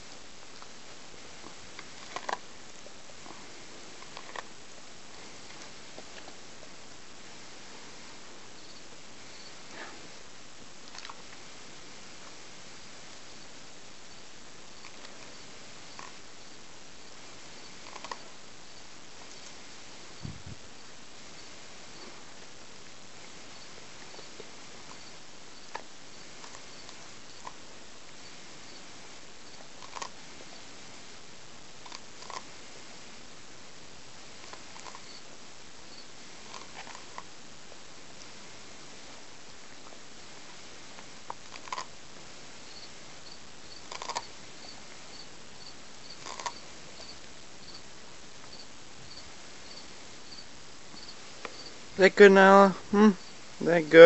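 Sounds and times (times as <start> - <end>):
steady hiss: 0.0 - 54.0
dog crunching corn cob: 1.4 - 4.6, 10.8 - 11.3, 17.8 - 18.3, 29.6 - 30.3, 31.8 - 32.5, 34.4 - 35.2, 36.3 - 37.3, 41.0 - 42.0, 43.7 - 44.4, 46.1 - 46.7
crickets chirping: 7.9 - 10.3, 12.7 - 37.5, 40.1 - 54.0.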